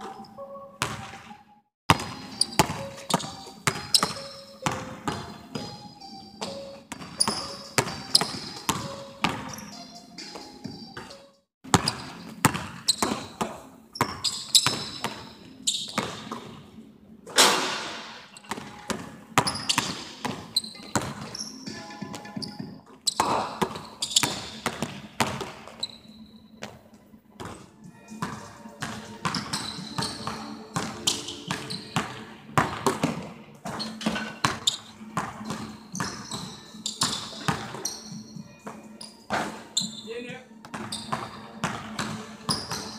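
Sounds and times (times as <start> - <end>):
sneaker squeaks: 0.0 - 16.6, 17.7 - 26.8, 27.4 - 42.9
basketball bouncing on hardwood: 0.8 - 1.2, 1.9 - 5.7, 6.4 - 9.5, 18.5 - 21.4, 23.2 - 25.7
basketball bouncing on hardwood floor: 0.8 - 1.2, 1.9 - 5.8, 6.4 - 9.6, 11.7 - 15.3, 15.9 - 16.6, 18.5 - 21.4, 22.1 - 25.7, 28.2 - 38.0, 40.6 - 42.9.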